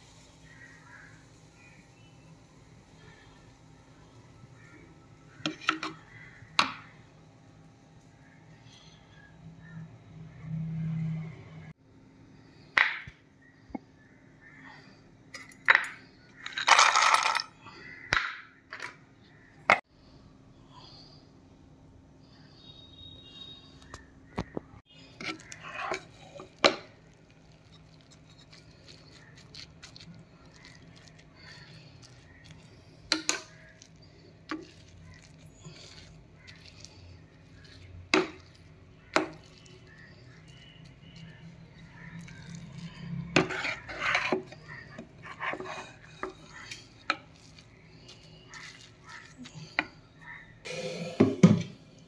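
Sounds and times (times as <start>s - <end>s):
spatula scraping a frying pan: 5.3s - 6.4s, 24.9s - 51.5s.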